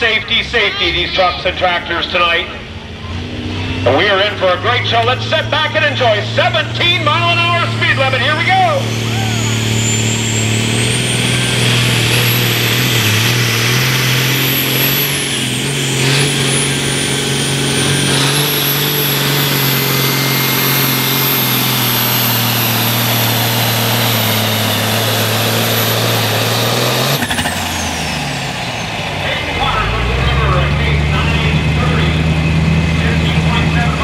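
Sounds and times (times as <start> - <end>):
diesel tractor engine under load: 0.0 - 34.0
high turbo whistle: 8.2 - 24.8.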